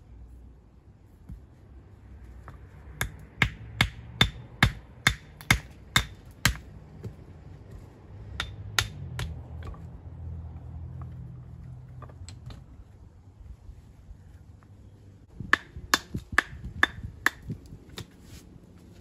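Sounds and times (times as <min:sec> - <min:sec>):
hammer striking stone: 0:02.4 - 0:07.1, 0:08.4 - 0:09.8.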